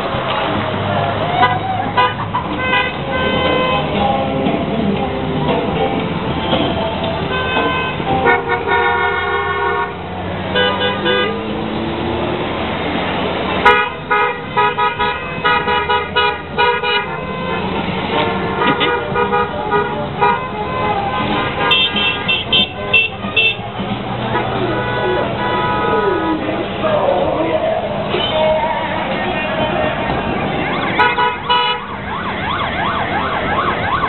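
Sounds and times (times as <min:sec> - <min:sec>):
passing traffic: 0:00.0 - 0:34.0
vehicle horns tooting: 0:01.3 - 0:04.0, 0:06.3 - 0:11.5, 0:13.6 - 0:26.6, 0:28.1 - 0:32.2.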